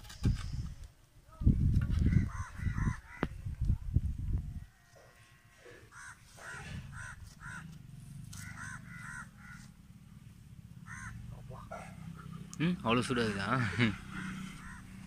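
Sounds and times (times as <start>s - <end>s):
crows cawing: 2.0s - 3.4s, 4.6s - 9.8s, 10.8s - 12.3s, 13.3s - 15.0s.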